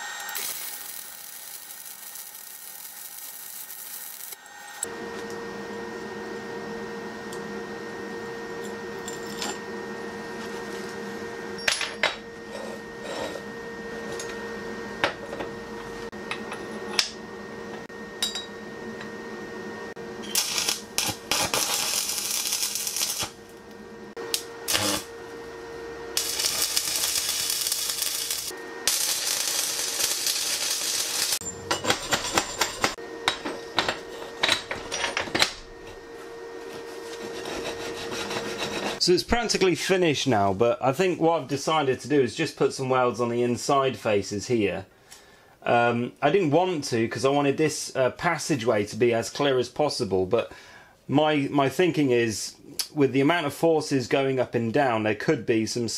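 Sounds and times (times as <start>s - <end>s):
arc welding crackle: 0.0s - 4.9s, 20.2s - 25.2s, 26.1s - 33.0s
steady background hum: 0.0s - 55.9s.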